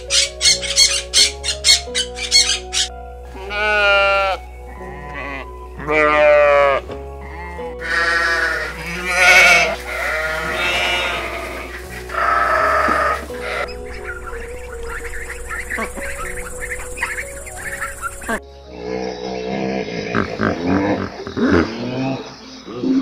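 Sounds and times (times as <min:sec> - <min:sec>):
background music: 0:00.0 - 0:23.0
sheep bleating: 0:03.3 - 0:13.7.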